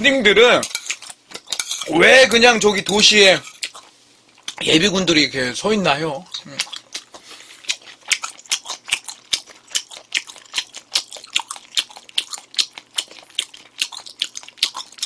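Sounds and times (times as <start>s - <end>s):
chewing rice: 3.4s - 4.6s, 6.3s - 15.0s.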